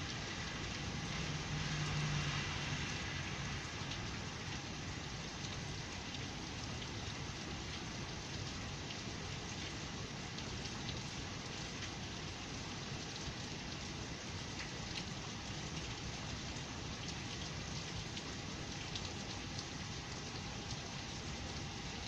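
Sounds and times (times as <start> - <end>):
heavy rain pouring: 0.0 - 22.0
raindrops ticking close by: 0.0 - 22.0
car driving past on wet street: 0.2 - 4.6.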